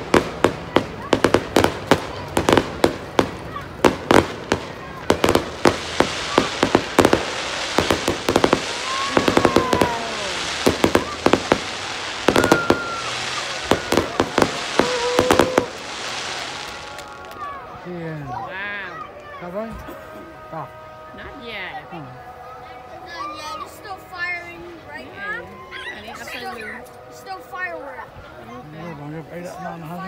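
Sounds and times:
firework bangs: 0:00.0 - 0:17.4
firework crackle: 0:00.0 - 0:17.8.

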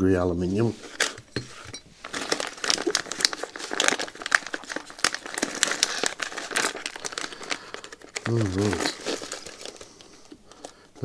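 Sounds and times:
plastic bag crinkling: 0:00.7 - 0:11.0.

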